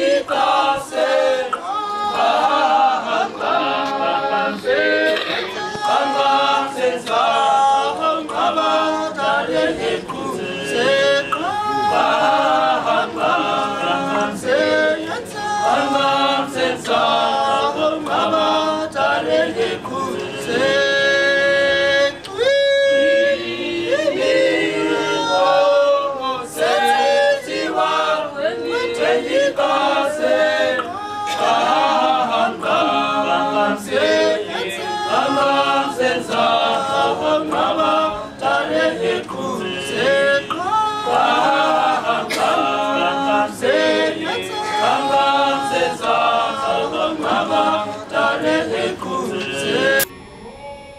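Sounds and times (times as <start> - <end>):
men singing in harmony: 0.0 - 50.1.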